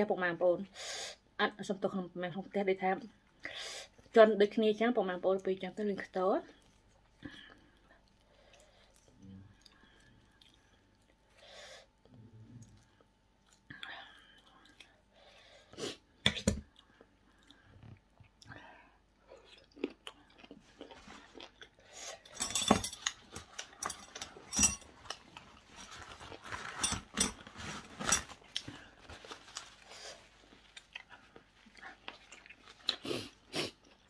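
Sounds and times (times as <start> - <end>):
person chewing and crunching food: 6.5 - 22.4, 23.0 - 34.0
kitchen scissors snipping: 22.3 - 25.2.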